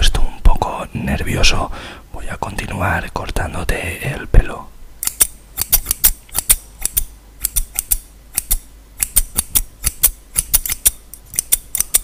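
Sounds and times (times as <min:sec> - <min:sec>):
scissors snipping: 0:05.0 - 0:12.0.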